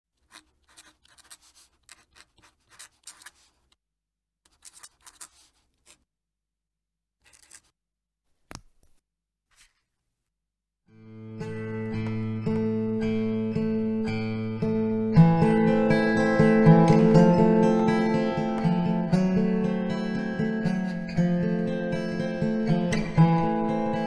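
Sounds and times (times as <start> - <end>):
pen nib scratching on paper: 0.2 - 3.7, 4.5 - 6.0, 7.2 - 7.7.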